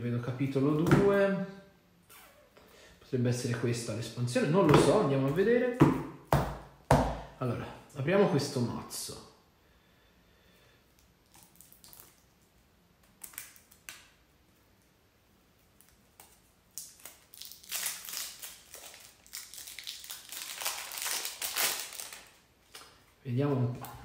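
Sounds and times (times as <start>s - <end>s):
plastic wrap crinkling and tearing: 13.1s - 14.1s, 15.8s - 23.0s.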